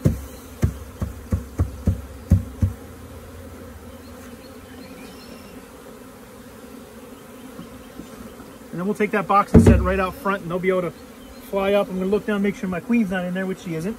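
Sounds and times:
knocks on wooden box: 0:00.0 - 0:02.8, 0:09.5 - 0:10.1
bees buzzing: 0:00.0 - 0:13.9.

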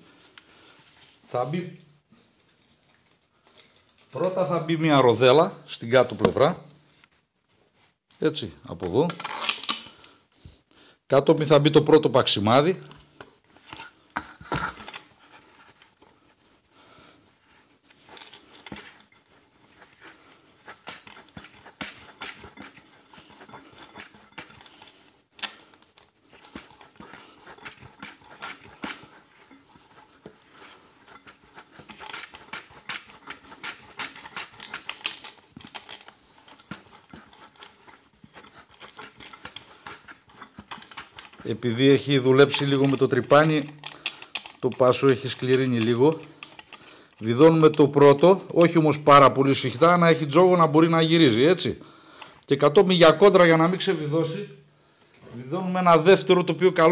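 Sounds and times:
metallic clicks and scrapes: 0:08.8 - 0:10.0, 0:17.9 - 0:49.0.

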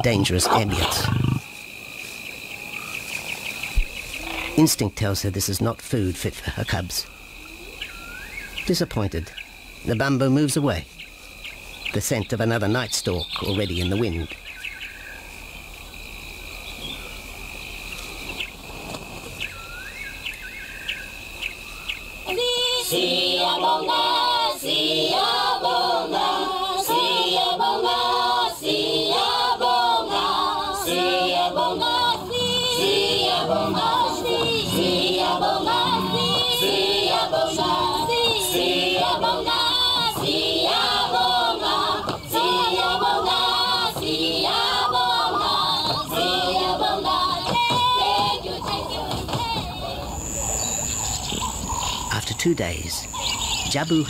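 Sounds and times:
high insect trill: 0:00.0 - 0:54.0
chirps: 0:06.0 - 0:18.6, 0:19.3 - 0:22.8, 0:40.6 - 0:49.1, 0:49.8 - 0:54.0
choral singing in harmony: 0:22.2 - 0:50.7.

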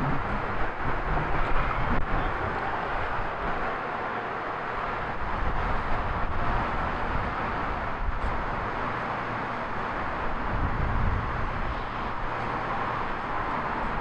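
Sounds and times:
turntable mechanical rumble: 0:00.0 - 0:03.7.

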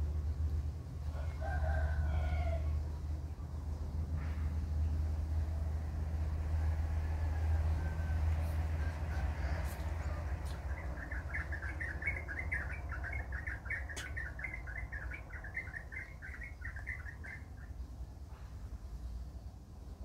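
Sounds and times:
small bird chirping: 0:08.8 - 0:18.0.

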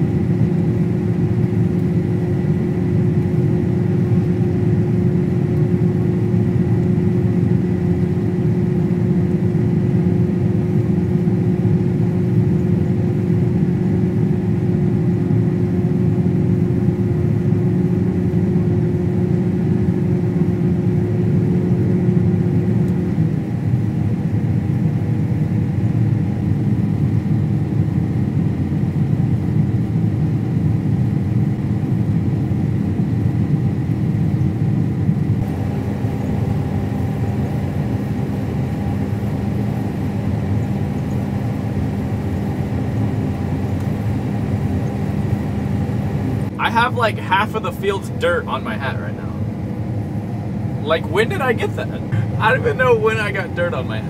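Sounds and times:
combine engine and threshing drone: 0:34.8 - 0:54.0.

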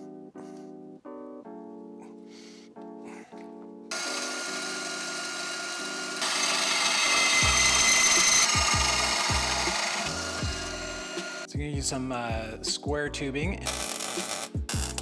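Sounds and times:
background music: 0:00.0 - 0:15.0
band saw cutting metal: 0:03.9 - 0:11.5, 0:13.6 - 0:15.0.

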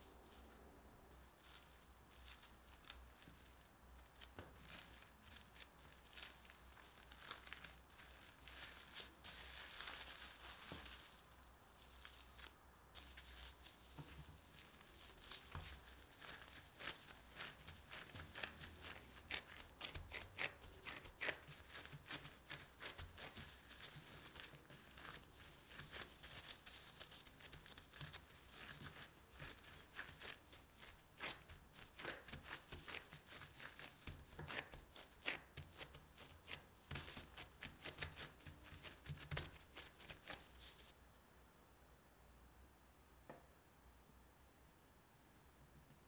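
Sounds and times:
gloves rustling and crinkling: 0:00.0 - 0:41.0
hands patting dough: 0:01.2 - 0:40.9.

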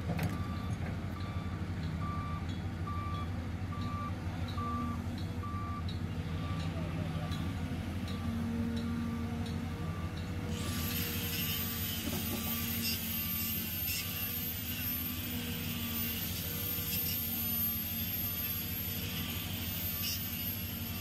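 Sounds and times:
excavator diesel engine: 0:00.0 - 0:20.0
faint beeping alarm: 0:00.3 - 0:07.4, 0:08.1 - 0:10.3.

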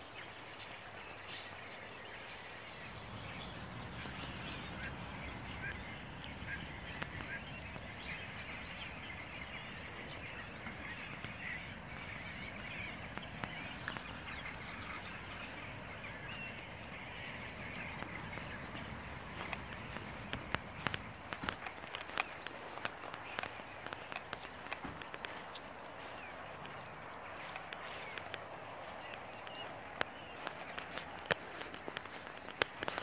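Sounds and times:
starlings chattering: 0:00.2 - 0:33.0.

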